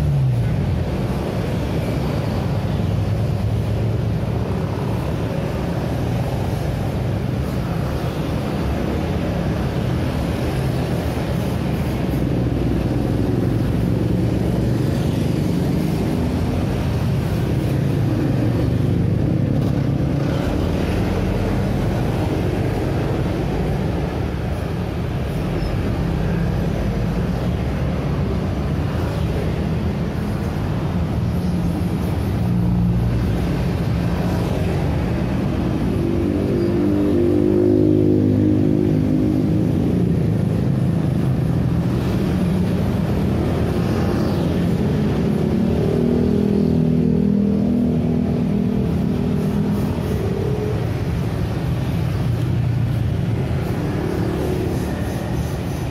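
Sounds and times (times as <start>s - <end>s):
traffic passing: 0.0s - 55.9s
loud engine passing: 32.7s - 55.9s.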